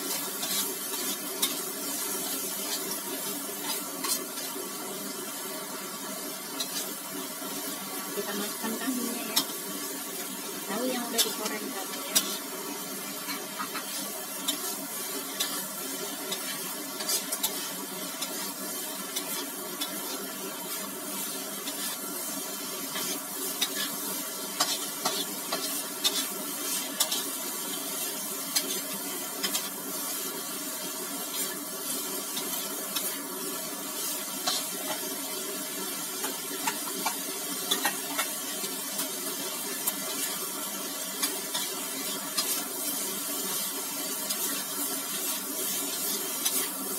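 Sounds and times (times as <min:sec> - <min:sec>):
food sizzling: 0:00.0 - 0:46.9
metal spatula scraping wok: 0:00.1 - 0:04.5, 0:10.8 - 0:30.4.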